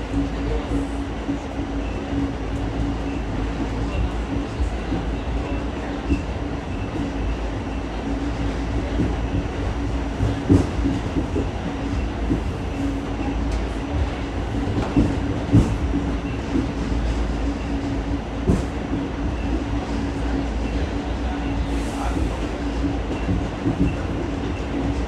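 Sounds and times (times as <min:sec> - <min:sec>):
subway car rumble: 0:00.0 - 0:25.0
wheels clacking on track: 0:08.0 - 0:25.0.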